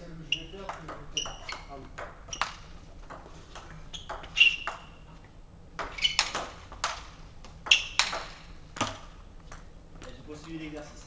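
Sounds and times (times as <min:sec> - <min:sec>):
table tennis ball clicks: 0:05.8 - 0:10.6.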